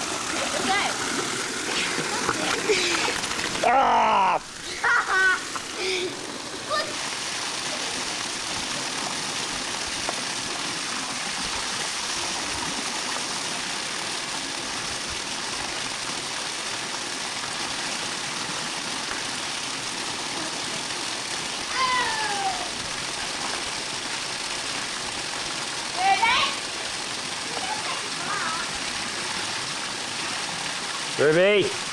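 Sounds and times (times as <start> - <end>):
water pouring from pool feature: 0.0 - 31.9.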